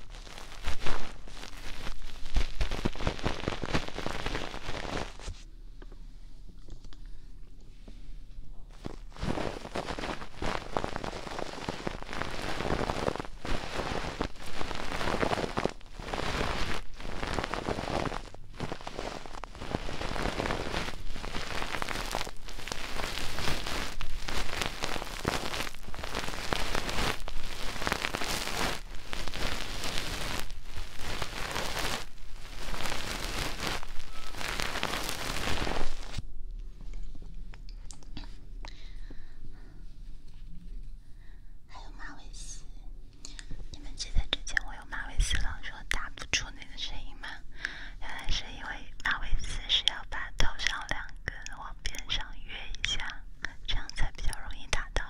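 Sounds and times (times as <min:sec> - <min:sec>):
fingers rubbing on microphone: 0:00.0 - 0:05.4, 0:08.7 - 0:36.2, 0:43.7 - 0:47.4, 0:48.0 - 0:55.0.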